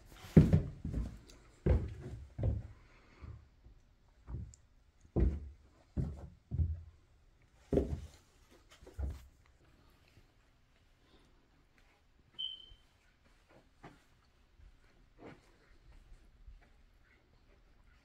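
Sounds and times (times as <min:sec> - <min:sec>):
footsteps on carpet: 0:00.0 - 0:02.7, 0:05.2 - 0:06.7, 0:07.7 - 0:09.3, 0:13.2 - 0:18.0.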